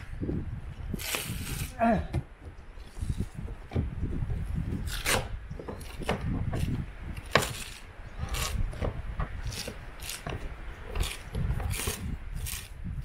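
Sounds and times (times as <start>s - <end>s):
adhesive tape crackling and tearing: 0.9s - 1.8s, 4.8s - 5.3s, 6.6s - 8.6s, 9.4s - 10.3s, 11.0s - 12.8s.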